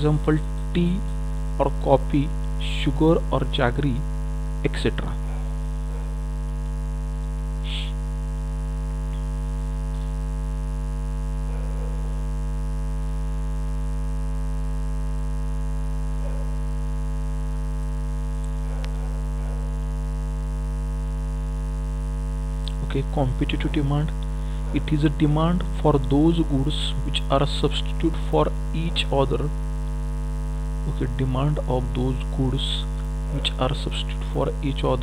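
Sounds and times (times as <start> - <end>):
electrical mains hum: 0.0 - 35.0.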